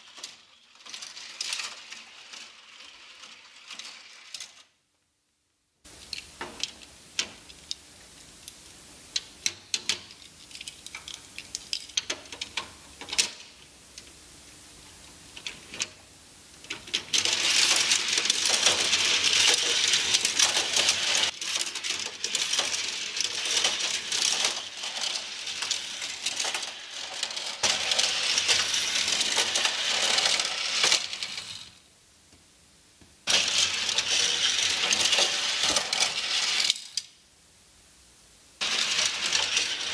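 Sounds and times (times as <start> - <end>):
toy cars clattering on plastic: 0.0 - 4.7, 9.4 - 13.5, 16.7 - 31.8, 33.3 - 37.1, 38.6 - 39.9.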